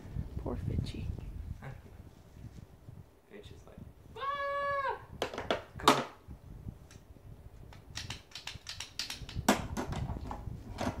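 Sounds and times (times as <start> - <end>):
small sharp clicks: 7.7 - 9.5.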